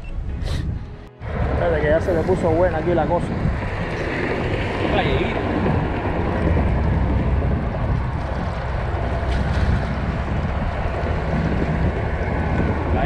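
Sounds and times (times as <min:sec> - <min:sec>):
wind buffeting microphone: 0:00.0 - 0:13.0
water washing against rocks: 0:03.4 - 0:13.0.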